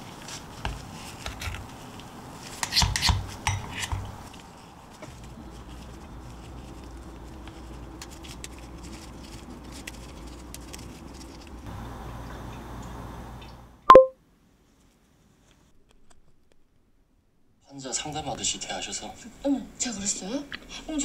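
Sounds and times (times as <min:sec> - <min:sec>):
faint room hum: 0:00.0 - 0:21.0
short loud tone: 0:13.9 - 0:14.2.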